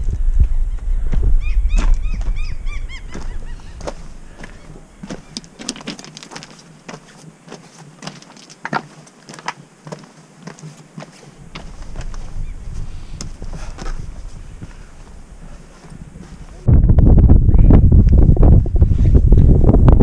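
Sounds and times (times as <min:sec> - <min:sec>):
wind buffeting microphone: 0:00.0 - 0:06.6, 0:11.4 - 0:20.0
boots crunching on rock: 0:01.1 - 0:16.6
stones clicking underfoot: 0:01.2 - 0:02.4, 0:03.1 - 0:12.4.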